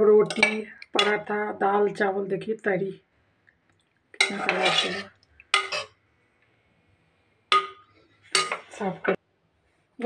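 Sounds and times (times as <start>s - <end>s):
metal ladle clinking on pot: 0.3s - 1.2s, 4.2s - 5.9s, 7.5s - 8.7s.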